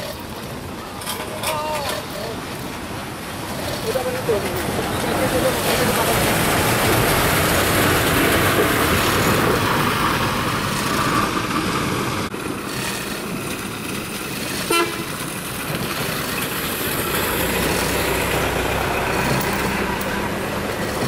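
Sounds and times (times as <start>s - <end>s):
noisy outdoor background: 0.0s - 21.0s
vehicle horn toot: 14.6s - 15.2s.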